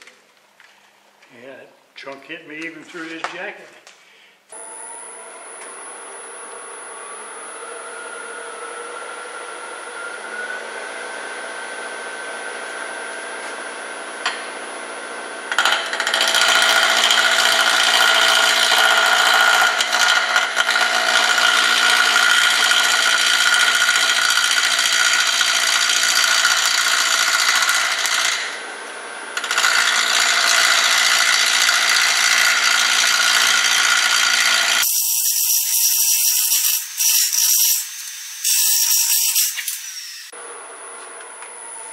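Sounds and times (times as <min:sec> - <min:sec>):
wood lathe whining: 0:04.5 - 0:13.6, 0:15.5 - 0:28.8, 0:29.4 - 0:40.4
turning tool scraping wood: 0:15.6 - 0:28.5.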